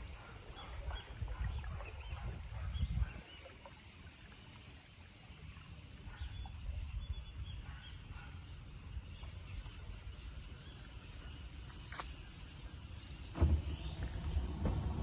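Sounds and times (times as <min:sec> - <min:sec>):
outboard motor idling: 0:12.7 - 0:15.0
thump: 0:13.3 - 0:15.0.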